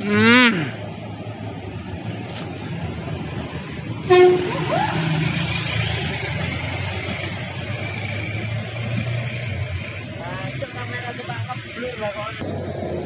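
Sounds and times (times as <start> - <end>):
diesel truck engine running: 0.0 - 13.0
vehicle horn toot: 4.1 - 4.7.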